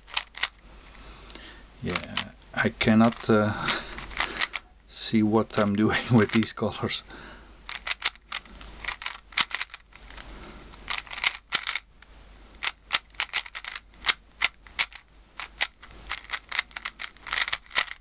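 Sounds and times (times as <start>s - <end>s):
speedcube layers clicking: 0.0s - 0.6s, 3.0s - 3.3s, 4.0s - 4.7s, 5.5s - 6.5s, 7.7s - 11.9s, 12.6s - 18.0s.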